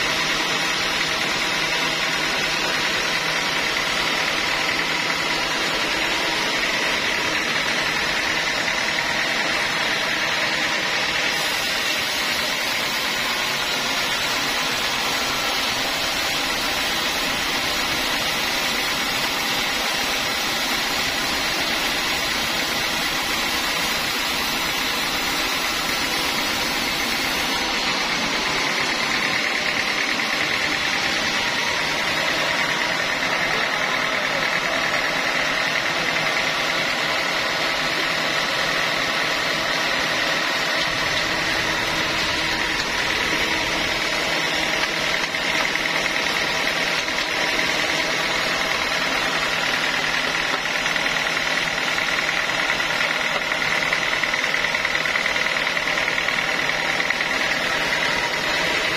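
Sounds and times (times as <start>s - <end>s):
band saw mill cutting log: 0.0s - 58.9s
bright hiss: 11.1s - 31.0s.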